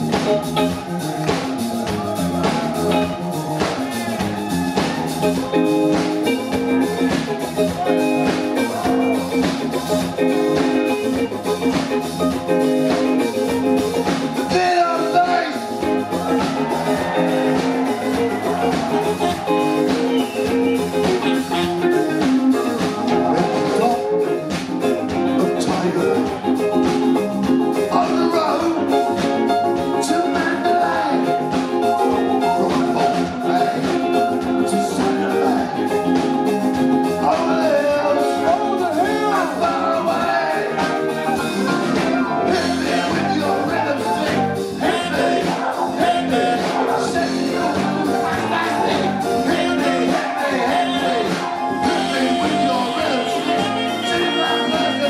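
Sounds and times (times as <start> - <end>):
bass guitar: 0.0 - 55.0
drum kit beat: 0.0 - 55.0
electric guitar: 0.0 - 55.0
keyboards: 0.0 - 55.0
man singing into microphone: 14.5 - 15.6, 23.1 - 26.8, 27.9 - 29.1, 29.9 - 31.6, 32.4 - 36.2, 37.2 - 55.0.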